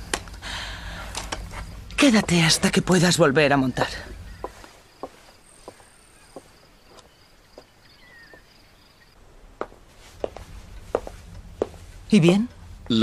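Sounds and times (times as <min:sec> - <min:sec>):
crickets chirping: 0:00.0 - 0:13.0
footsteps on wooden floor: 0:01.4 - 0:02.8, 0:03.7 - 0:07.7, 0:09.6 - 0:12.5.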